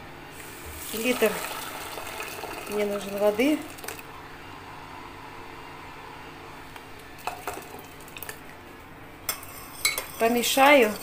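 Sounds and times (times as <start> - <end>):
water pouring into a pot: 0.4 - 4.1
kitchenware clinking: 9.3 - 11.0.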